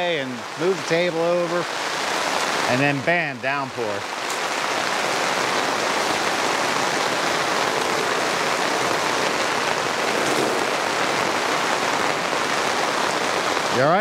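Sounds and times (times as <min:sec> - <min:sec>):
heavy rain on fabric canopy: 0:00.0 - 0:14.0.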